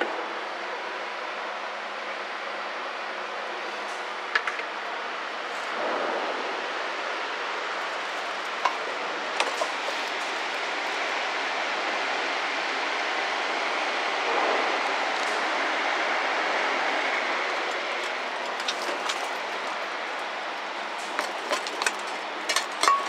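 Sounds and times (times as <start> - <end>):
steady rushing outdoor noise: 0.0 - 23.0
clicks and knocks on metal: 21.1 - 23.0.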